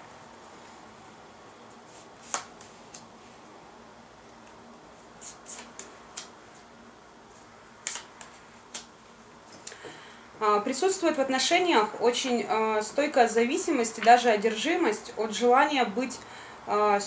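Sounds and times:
cards snapping and tapping on table: 0:05.6 - 0:06.3, 0:07.8 - 0:08.9.

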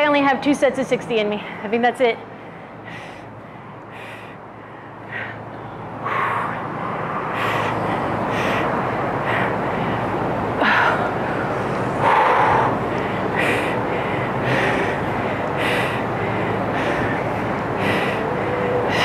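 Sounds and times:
woman breathing hard: 0:02.3 - 0:19.0
rushing noise: 0:05.3 - 0:19.0.

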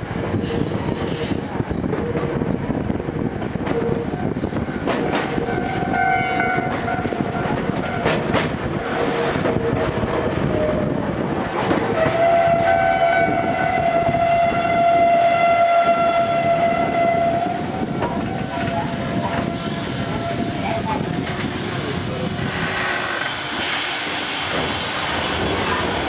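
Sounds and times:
train rumble from inside: 0:00.0 - 0:26.0.

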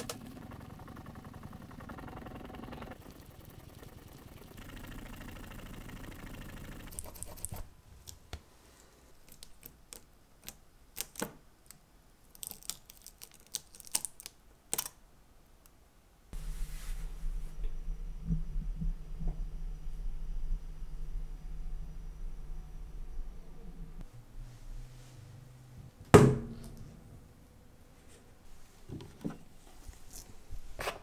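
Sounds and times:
tape crackling and peeling: 0:09.2 - 0:15.0.

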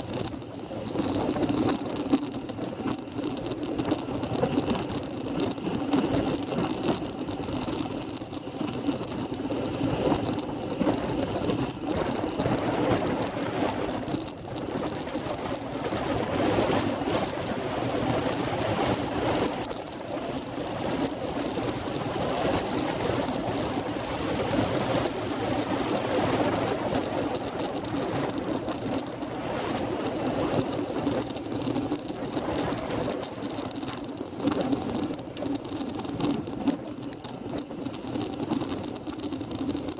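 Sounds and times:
bicycle road vibration rattle: 0:00.0 - 0:39.9.

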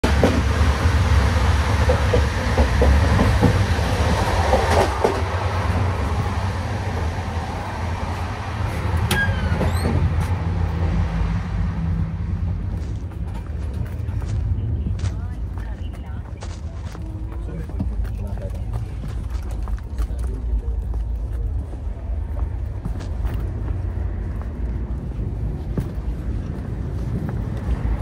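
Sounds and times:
train rumble from inside: 0:00.0 - 0:28.0
high falling squeak: 0:09.1 - 0:10.1.

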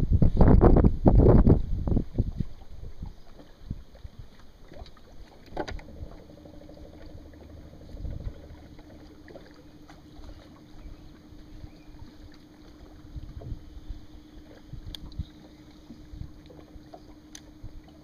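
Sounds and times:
electric motor humming: 0:05.7 - 0:18.0.

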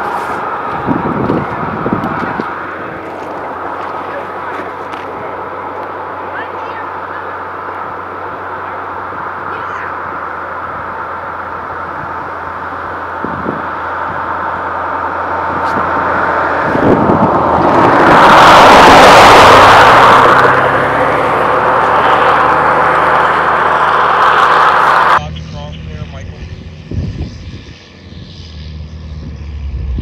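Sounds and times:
vehicle passing close by: 0:00.0 - 0:30.0
steady low hum: 0:25.2 - 0:30.0.

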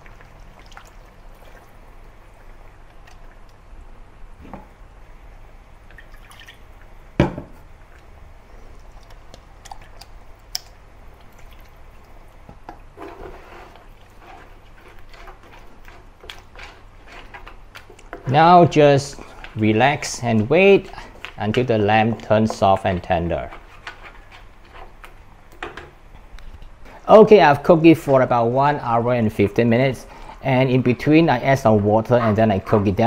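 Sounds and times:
soft wet plops: 0:00.0 - 0:01.8, 0:08.8 - 0:12.9
wooden spatula stirring paste: 0:11.2 - 0:25.6, 0:26.9 - 0:33.0
paste scraped from plastic jug: 0:13.0 - 0:17.6, 0:30.1 - 0:33.0.

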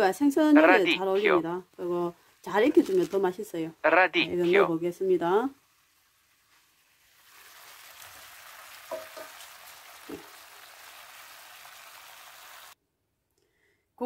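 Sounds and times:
chicken sizzling in frying pan: 0:04.7 - 0:12.8.

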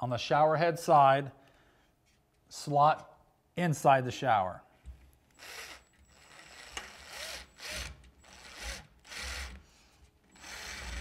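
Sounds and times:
cordless drill driving a screw: 0:05.3 - 0:09.6, 0:10.2 - 0:11.0.

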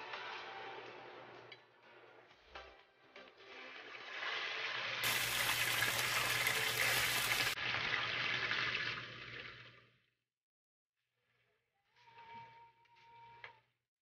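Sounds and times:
food sizzling in hot oil: 0:03.8 - 0:08.6.

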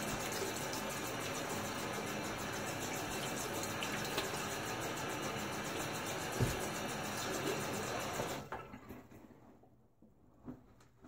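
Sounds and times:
tap running into sink: 0:06.4 - 0:06.7.

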